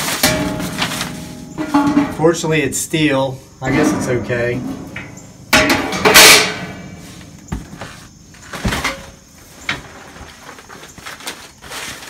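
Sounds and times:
loud metal clang: 0:00.0 - 0:02.8, 0:03.6 - 0:07.8
steel parts clattering: 0:00.0 - 0:02.9, 0:03.6 - 0:07.5.

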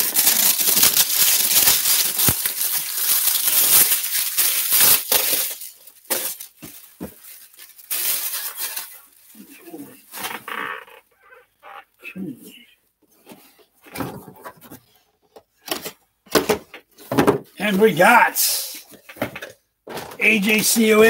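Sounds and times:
packaging rustling and crinkling: 0:00.0 - 0:10.8.

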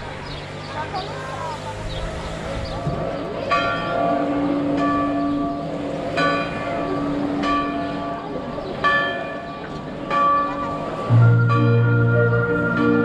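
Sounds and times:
church bell tolling: 0:03.0 - 0:13.0.

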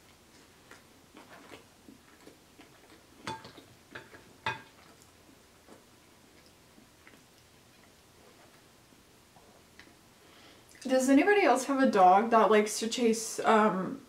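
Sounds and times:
chewing bread: 0:00.0 - 0:10.0.

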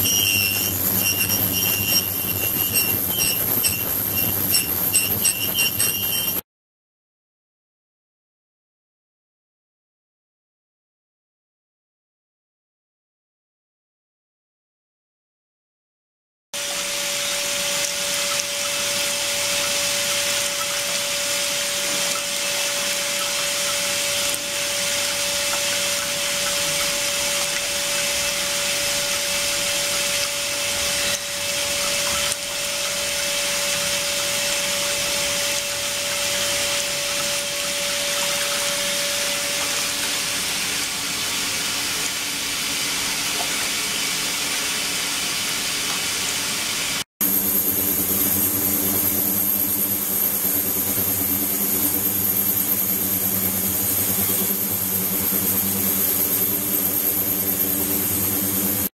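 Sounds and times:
water pouring and spilling: 0:16.6 - 0:48.6
mid-pitched hum: 0:47.2 - 0:58.9.

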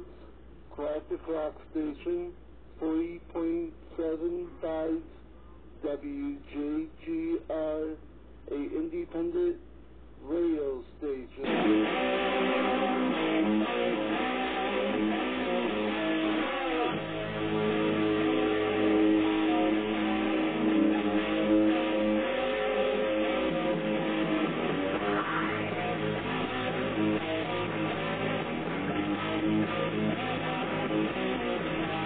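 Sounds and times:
rock song on radio: 0:10.3 - 0:32.0.

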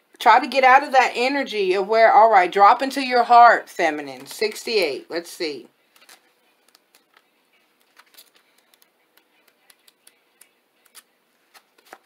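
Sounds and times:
paper pages flicking: 0:05.9 - 0:12.0.

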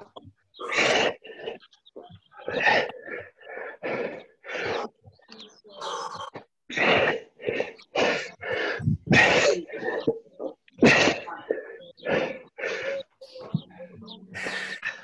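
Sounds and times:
person breathing hard: 0:02.4 - 0:05.0, 0:05.8 - 0:10.2, 0:11.2 - 0:13.5.

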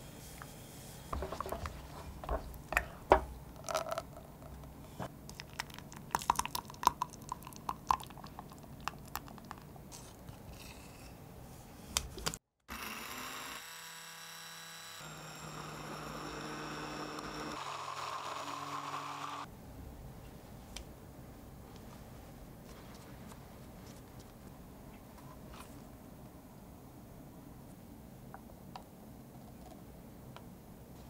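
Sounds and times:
custard pouring into plastic beaker: 0:05.3 - 0:09.7
immersion blender motor hum: 0:12.7 - 0:19.5.

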